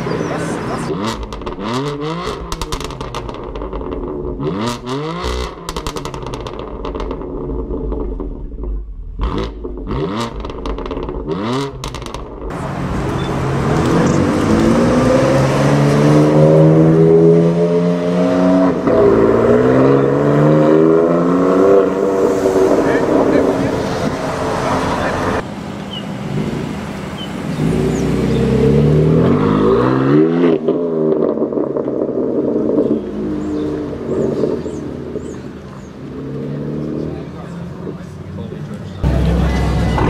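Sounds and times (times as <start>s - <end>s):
car accelerating away: 0.0s - 40.0s
car engine revving: 0.0s - 40.0s
exhaust pops: 1.1s - 14.8s.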